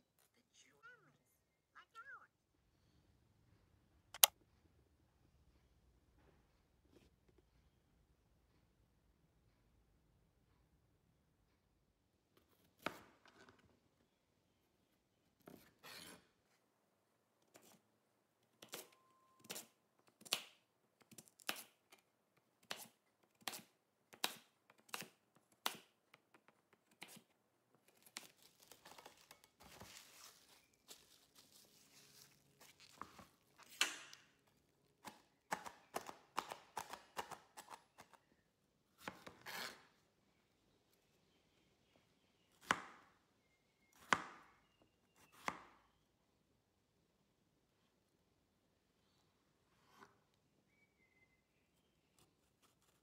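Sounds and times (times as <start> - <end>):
knife cutting strawberry: 18.6 - 22.0, 35.0 - 38.3, 39.0 - 39.9, 52.1 - 53.0
soft rustling: 28.4 - 33.7
cleaver slicing sweet potato: 35.0 - 38.2.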